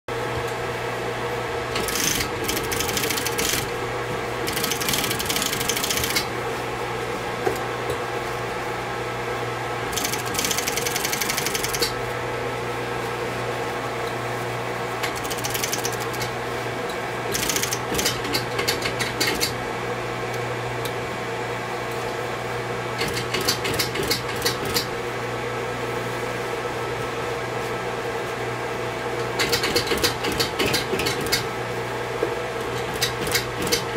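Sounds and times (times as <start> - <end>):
sewing machine hum: 1.7 - 6.4, 9.9 - 12.0, 15.0 - 16.3, 17.3 - 19.6, 32.9 - 33.9
sewing machine stitching: 1.8 - 3.7, 4.4 - 6.3, 9.9 - 12.0, 15.0 - 16.3, 17.3 - 19.5, 32.9 - 33.9.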